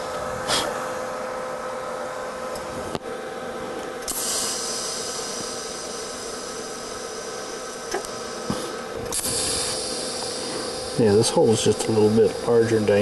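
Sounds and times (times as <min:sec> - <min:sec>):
constant hum: 0:00.0 - 0:13.0
welding arc hissing: 0:04.1 - 0:13.0.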